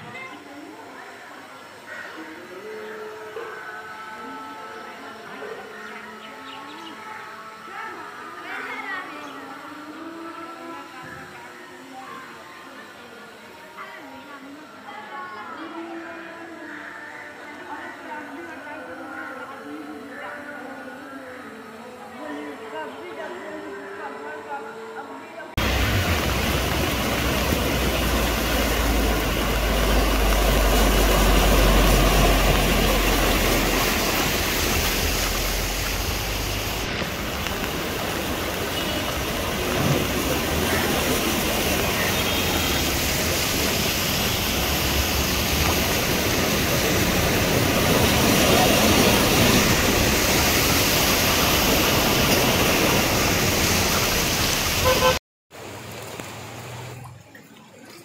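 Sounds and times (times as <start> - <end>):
deep rumble: 25.6 - 41.7
traffic noise: 25.6 - 57.1
floodwater rushing and splashing: 25.6 - 58.0.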